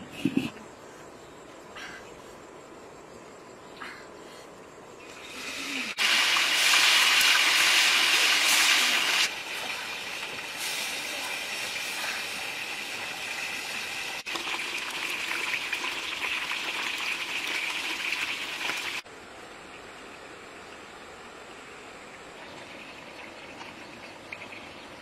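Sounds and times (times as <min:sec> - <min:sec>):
fish sizzling in hot oil: 0:05.9 - 0:19.0.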